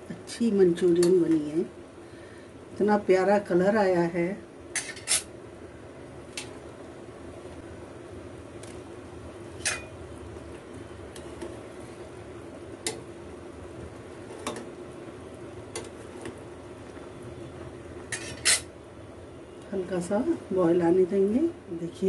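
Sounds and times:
gravy boiling: 0.0s - 22.0s
metal ladle clinking against pan: 9.6s - 10.0s.

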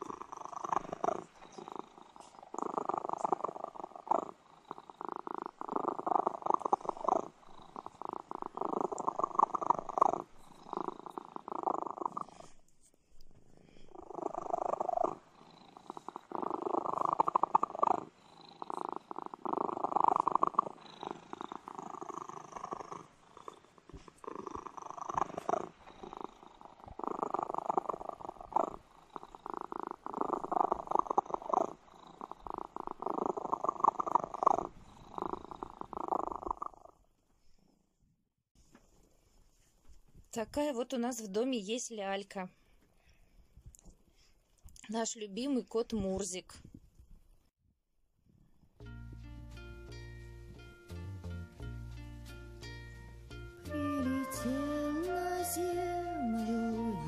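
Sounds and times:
cat purring: 0.0s - 38.0s.

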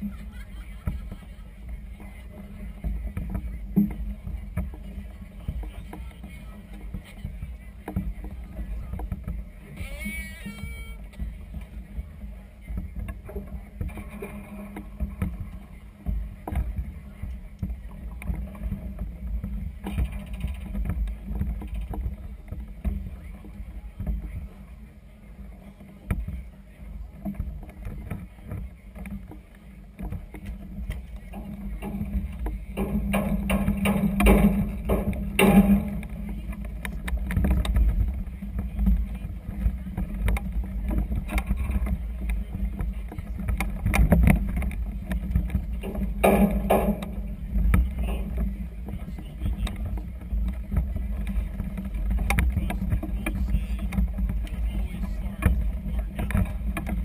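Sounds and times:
choppy water against hull: 0.0s - 57.0s
knocks: 30.0s - 39.1s, 40.0s - 57.0s
sharp knocks: 31.3s - 38.0s, 43.5s - 48.5s.

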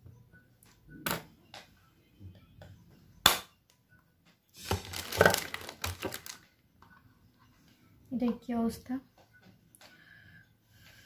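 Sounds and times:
small objects clattering: 4.6s - 6.4s.

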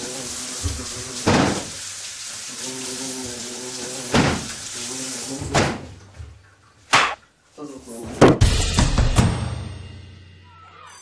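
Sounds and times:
fly buzzing: 0.0s - 1.3s, 2.6s - 5.5s
running tap water hiss: 0.0s - 5.9s.

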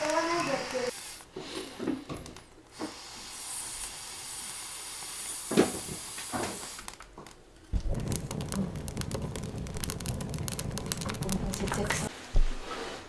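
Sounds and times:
wood fire crackling and popping: 0.0s - 1.0s, 5.0s - 12.1s
air blown through tube hissing: 7.8s - 12.1s.

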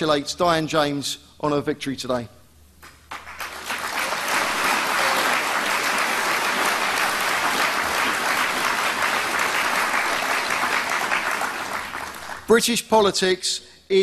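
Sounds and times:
audience applauding: 2.8s - 12.5s.

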